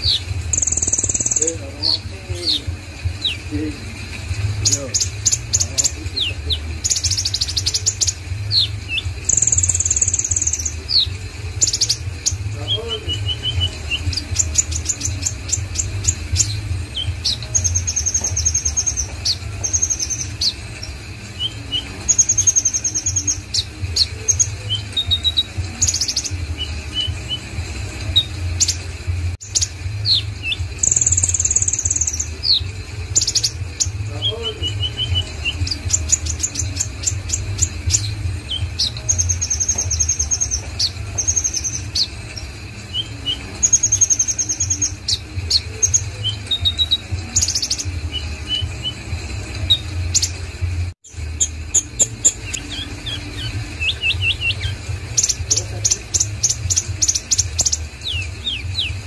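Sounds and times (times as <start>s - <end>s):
bird singing chirps and trills: 0.0s - 59.0s.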